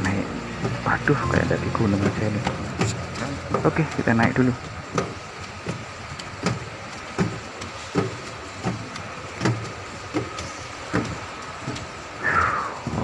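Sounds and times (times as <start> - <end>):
escalator steps clunking: 0.0 - 12.2
escalator humming: 0.0 - 13.0.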